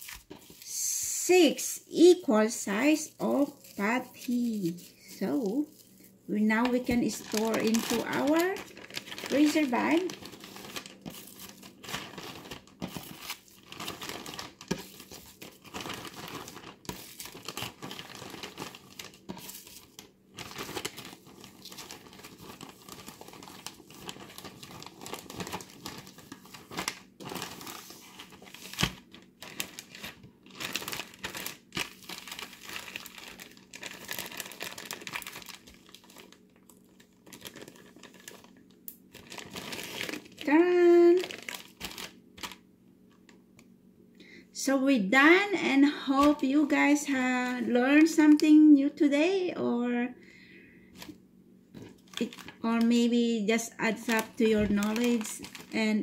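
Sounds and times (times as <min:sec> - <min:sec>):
plastic bag crinkling: 0:02.0 - 0:42.6, 0:51.8 - 0:53.2, 0:53.9 - 0:56.0.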